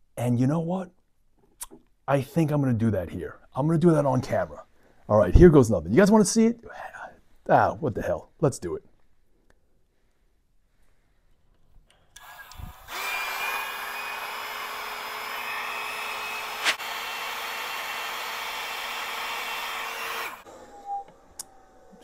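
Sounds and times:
hot-air blower running: 12.2s - 22.0s.

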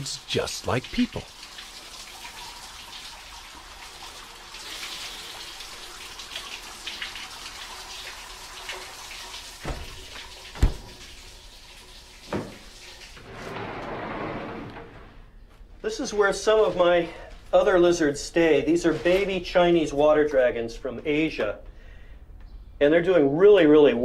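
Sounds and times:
water running and splashing: 0.0s - 13.4s.

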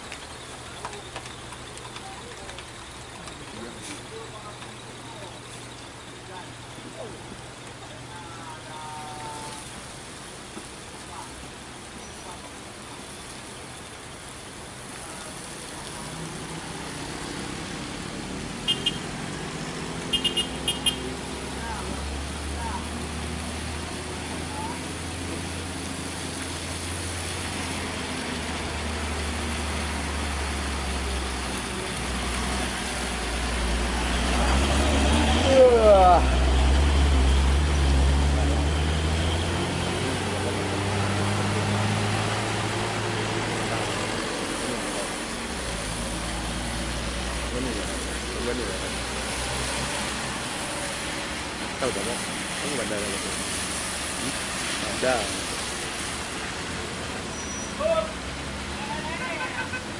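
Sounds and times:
tyres hissing on wet road: 0.0s - 59.9s
vehicle engines humming: 0.0s - 59.9s
horn beeps: 18.6s - 19.1s, 20.1s - 21.1s.

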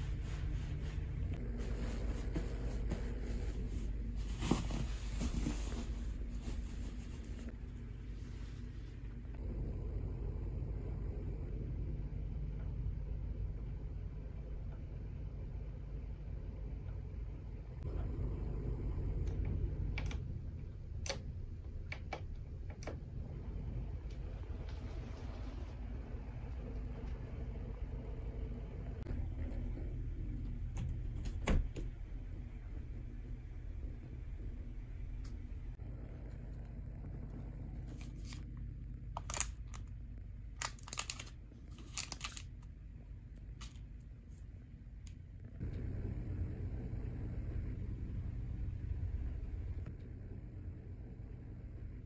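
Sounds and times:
steady low hum: 0.0s - 52.0s
plastic packets crinkling: 39.2s - 39.9s, 40.6s - 42.7s.

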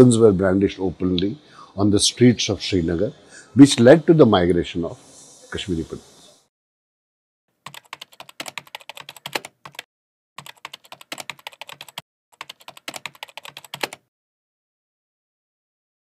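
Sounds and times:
typing on computer keyboard: 7.7s - 14.1s.

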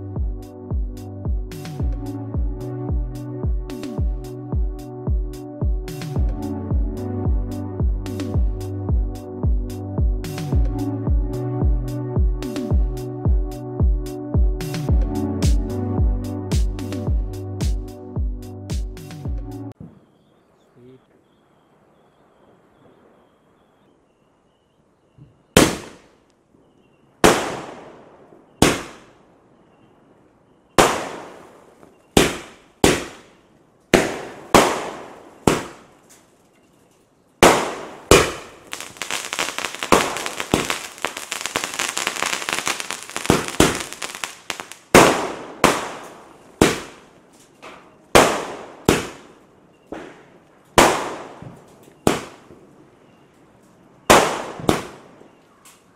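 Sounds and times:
fireworks crackling: 30.8s - 36.4s, 37.4s - 49.4s
fireworks shells banging: 37.5s - 50.3s.

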